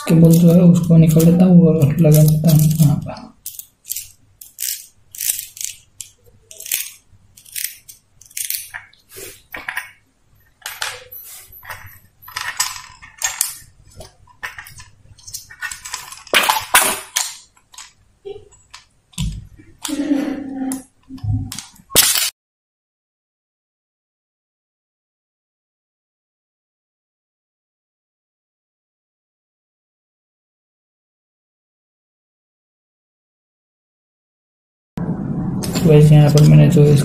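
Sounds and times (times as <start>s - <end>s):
plastic parts scraping and clicking: 0.0s - 20.0s, 20.7s - 22.3s.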